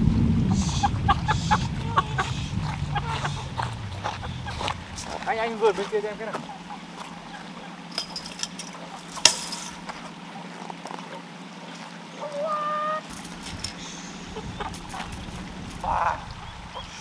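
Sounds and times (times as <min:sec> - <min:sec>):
low steady hum: 0:00.0 - 0:17.0
chicken call: 0:00.5 - 0:05.2, 0:12.2 - 0:13.1.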